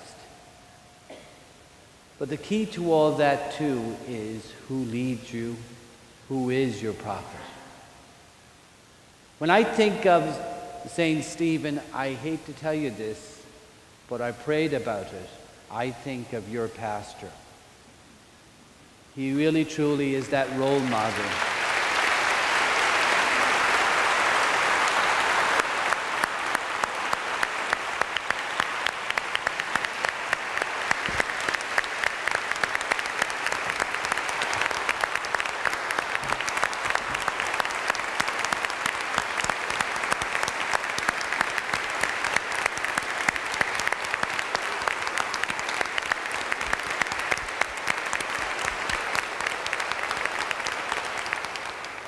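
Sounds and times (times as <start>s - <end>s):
crowd applauding: 20.6s - 52.0s
sharp close claps: 24.9s - 52.0s.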